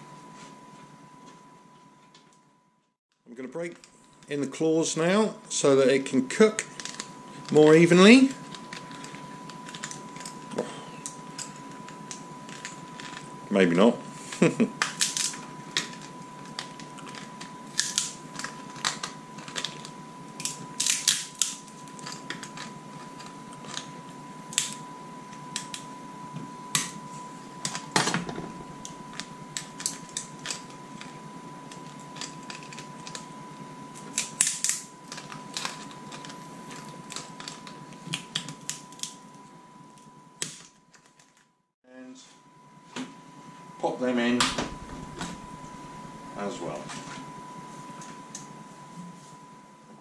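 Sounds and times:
lobster shells cracking: 14.8s - 23.9s, 31.7s - 33.3s, 34.0s - 39.2s.

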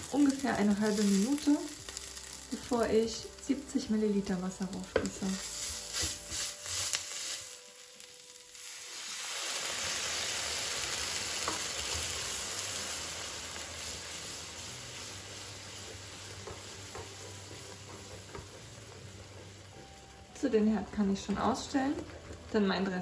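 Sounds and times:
oil sizzling in a frying pan: 0.0s - 23.0s.

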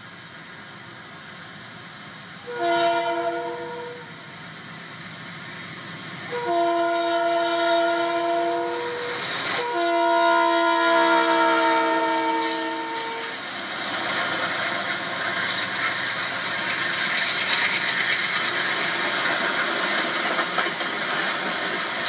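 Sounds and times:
passing train rumble: 0.0s - 22.0s
locomotive air horn blasts: 2.4s - 4.1s, 6.3s - 13.4s.

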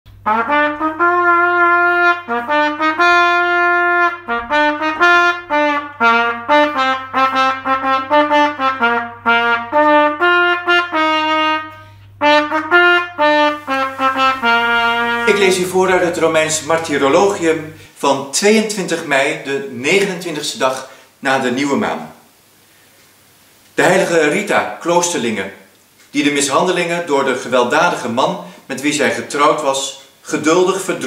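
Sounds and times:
instrumental melody of held notes: 0.3s - 17.8s.

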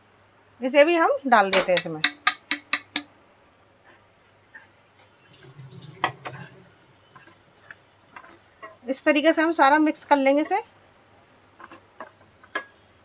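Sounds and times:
sharp taps on pan: 1.5s - 3.1s
wooden spatula scraping pan: 5.5s - 10.6s, 11.4s - 13.0s.

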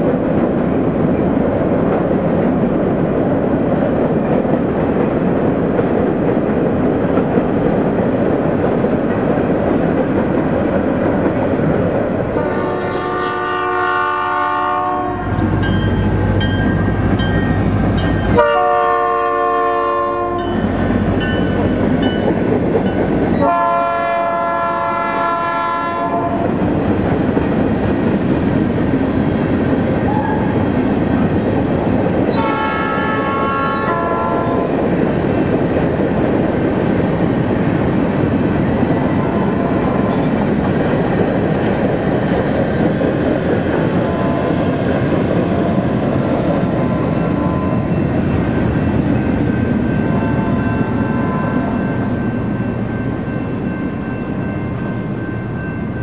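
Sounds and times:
train rumbling by: 0.0s - 56.0s
locomotive air horn blasts: 12.4s - 15.4s, 18.4s - 20.4s, 23.4s - 26.4s, 32.4s - 34.6s.

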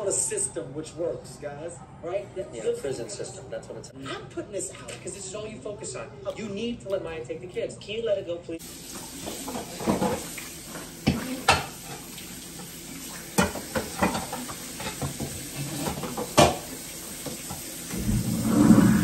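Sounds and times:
running tap water: 8.6s - 19.0s
dishes clattering in steel sink: 9.2s - 12.1s, 13.3s - 17.6s.

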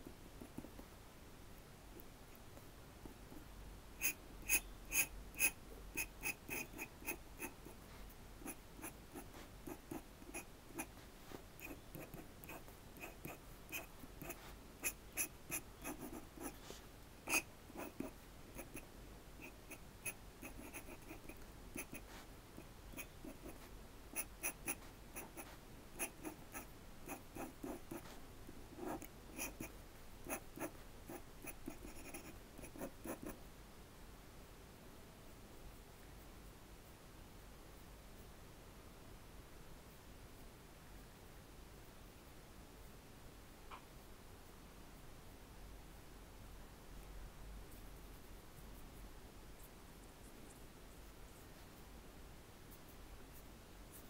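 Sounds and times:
pen nib scratching paper: 3.0s - 33.4s.

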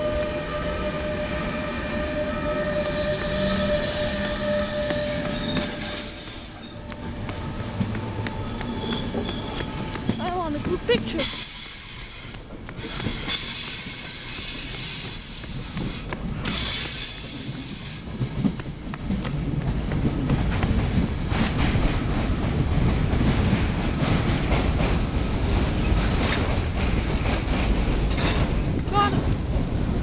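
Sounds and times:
train wheels squealing: 0.0s - 10.4s, 11.1s - 18.7s
train rolling rumble: 0.0s - 30.0s
wheels clacking over rail joints: 3.0s - 30.0s.

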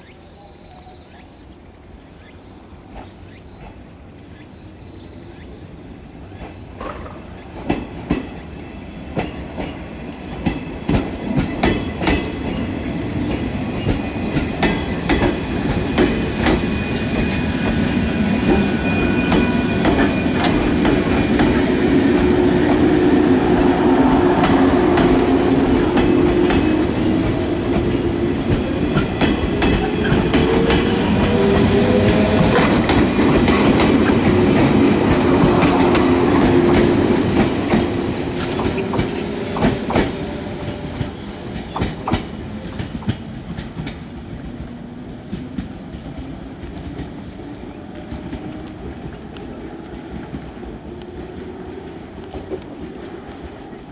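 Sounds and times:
wheels clicking over rail joints: 9.1s - 44.1s.

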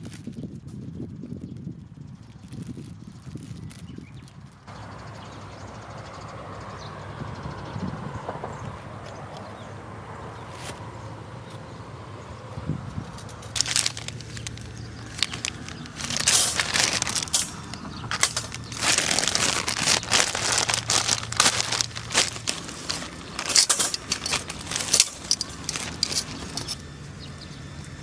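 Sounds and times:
plastic bag crinkling: 13.4s - 26.8s.

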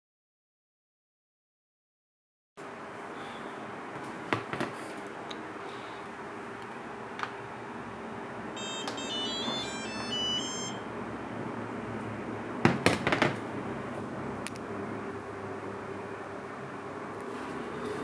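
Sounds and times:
transmitter buzzer beeps: 8.6s - 10.9s.

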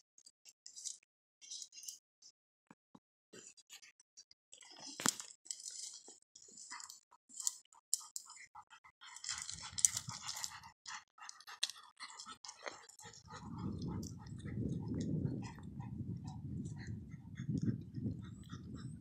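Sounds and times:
dogs chewing grass: 4.8s - 18.9s.

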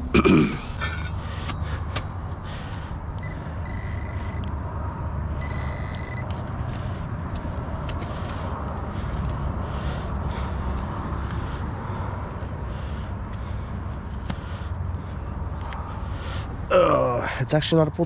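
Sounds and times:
metal detector high beeps: 3.2s - 4.5s, 5.4s - 6.3s.

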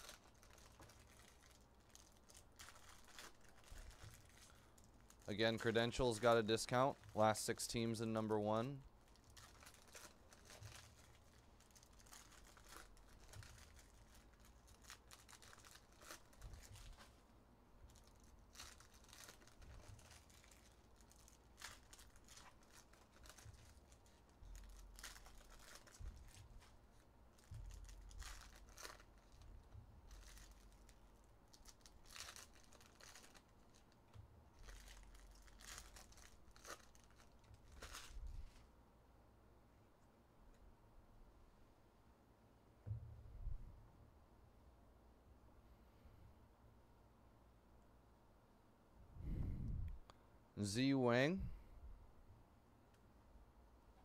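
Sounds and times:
foil wrappers tearing and crinkling: 0.0s - 7.3s, 9.0s - 17.2s, 17.9s - 34.0s, 34.6s - 38.4s.

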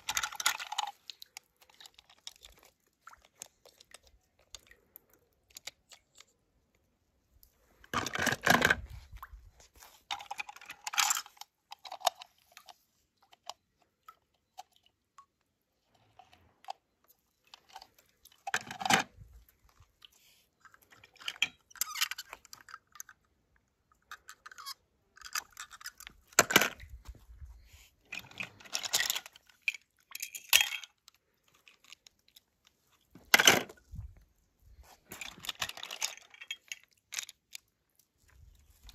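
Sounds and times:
toy cars scraping and clicking: 20.8s - 23.3s.

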